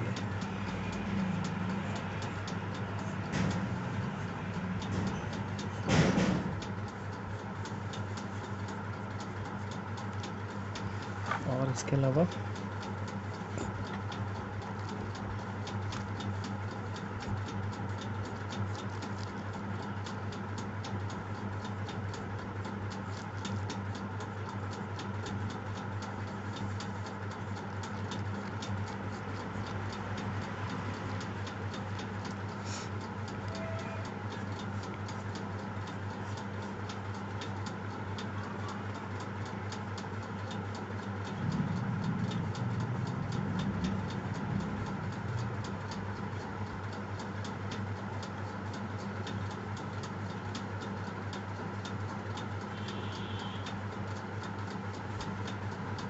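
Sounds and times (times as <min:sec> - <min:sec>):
steady ticking: 0:00.0 - 0:56.0
low hum: 0:41.3 - 0:45.6.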